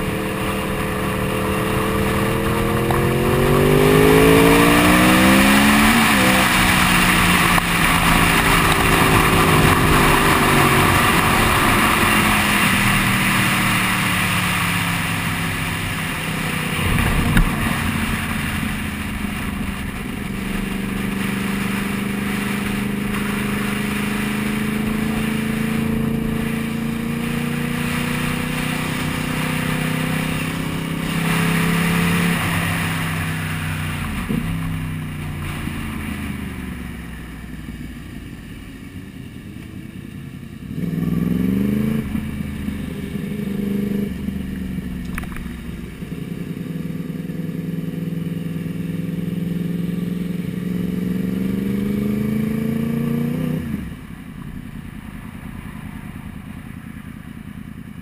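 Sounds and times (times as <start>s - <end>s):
wind rush over microphone: 0.0s - 36.8s
motorcycle engine revving: 0.0s - 58.0s.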